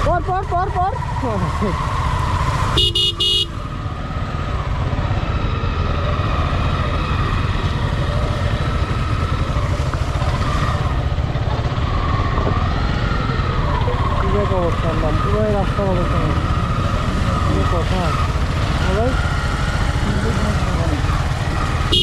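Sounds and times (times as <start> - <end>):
motorcycle engine running: 0.0 - 22.0
road noise rumbling: 0.0 - 22.0
vehicle horn toots: 2.7 - 3.6, 21.8 - 22.0.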